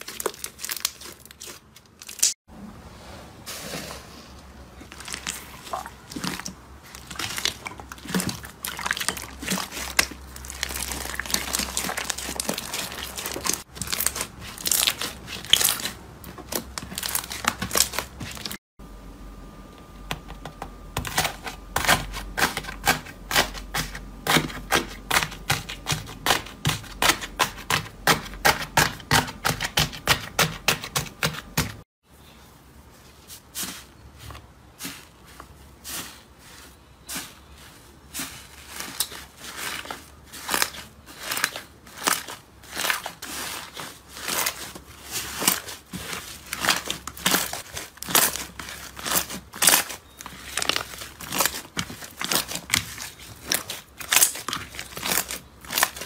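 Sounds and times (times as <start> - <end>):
slime crackling and popping: 0.0 - 2.4, 4.9 - 18.6, 38.9 - 56.0.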